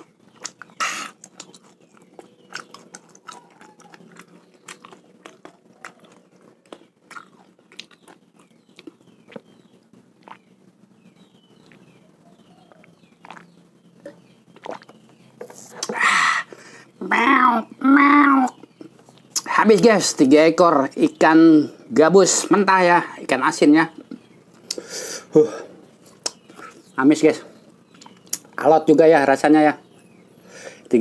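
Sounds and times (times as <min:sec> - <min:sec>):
wet lip smacks and tongue clicks: 0:00.0 - 0:09.5, 0:10.2 - 0:10.5, 0:12.7 - 0:15.0, 0:15.6 - 0:16.0, 0:26.1 - 0:26.8, 0:27.9 - 0:28.6
sharp breath out: 0:30.4 - 0:30.9.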